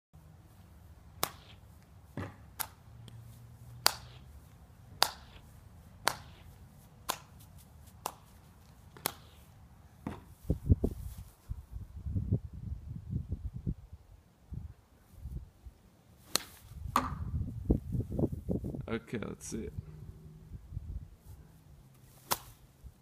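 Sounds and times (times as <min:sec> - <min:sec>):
golf club striking balls: 0:02.2 - 0:03.2, 0:03.8 - 0:04.3, 0:05.0 - 0:06.5, 0:16.3 - 0:17.4.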